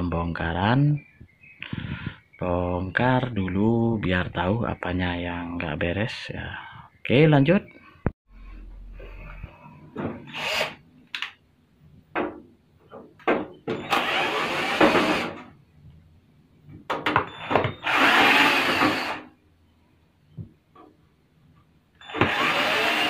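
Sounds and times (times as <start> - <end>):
electric screwdriver running: 22.1 - 23.0.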